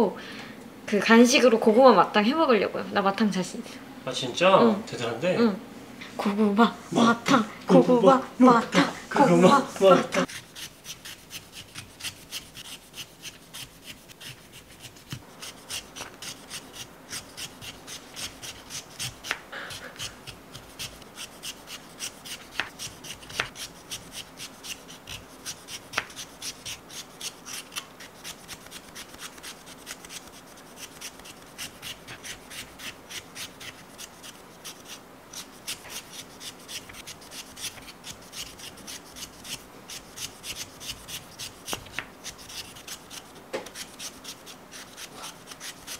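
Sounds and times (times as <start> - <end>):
peeler scraping potato skin: 10.1 - 45.9.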